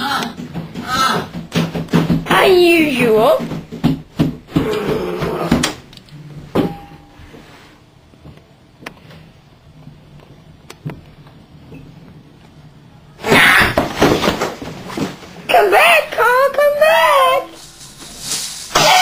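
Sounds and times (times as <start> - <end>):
rustling: 17.5 - 19.0.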